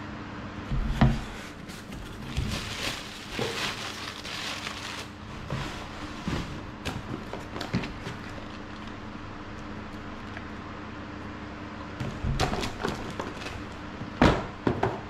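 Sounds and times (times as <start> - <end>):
packing paper rustling: 1.6 - 9.1, 12.4 - 13.8.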